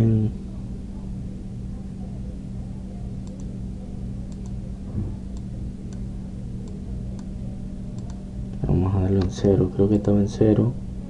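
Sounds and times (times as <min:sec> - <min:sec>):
low electrical hum: 0:00.0 - 0:11.0
mouse clicks: 0:04.3 - 0:04.6, 0:08.0 - 0:08.2.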